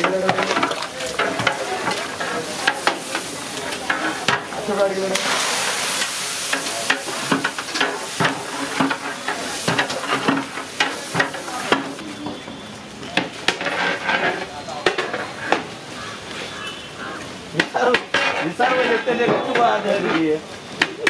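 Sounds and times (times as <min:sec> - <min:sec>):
cooking liquid sizzling: 0:00.0 - 0:12.0
metal ladle scraping a pot: 0:13.5 - 0:14.5, 0:18.0 - 0:19.3.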